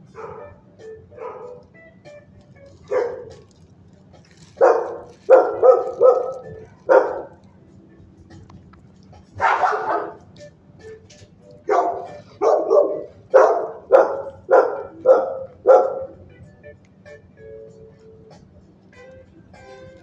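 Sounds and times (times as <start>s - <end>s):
dog barking: 0.0s - 1.7s, 2.8s - 3.5s, 4.4s - 7.6s, 9.4s - 10.2s, 11.6s - 16.2s.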